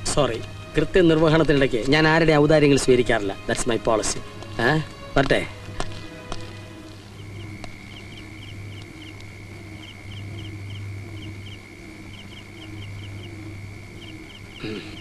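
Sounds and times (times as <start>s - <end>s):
insects trilling: 0.0s - 15.0s
insect chirps in pairs: 5.0s - 15.0s
low hum: 6.0s - 15.0s.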